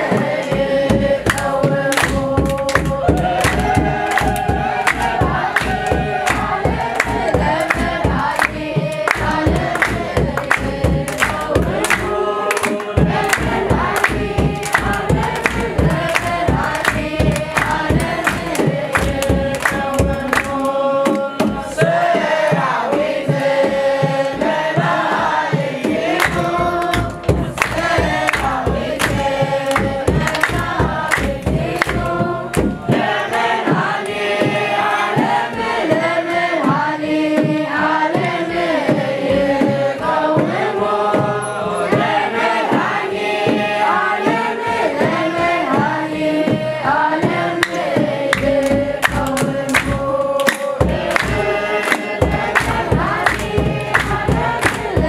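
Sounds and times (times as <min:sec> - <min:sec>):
hand clapping: 0:00.0 - 0:23.8, 0:24.4 - 0:37.5, 0:38.2 - 0:55.0
children's choir singing a hymn: 0:00.0 - 0:55.0
drum beating steady rhythm: 0:00.0 - 0:55.0.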